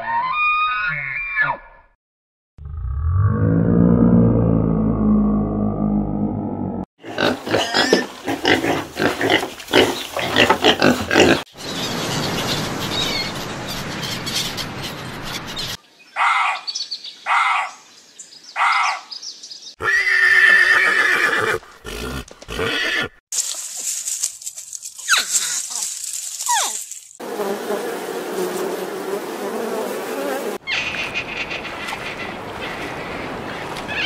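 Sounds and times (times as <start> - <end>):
piglets grunting and squealing: 7.0 - 11.5.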